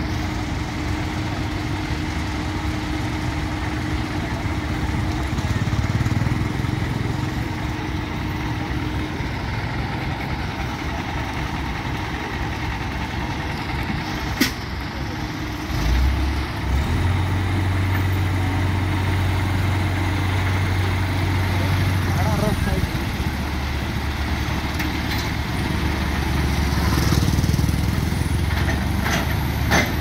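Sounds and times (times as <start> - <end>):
diesel engines idling: 0.0 - 30.0.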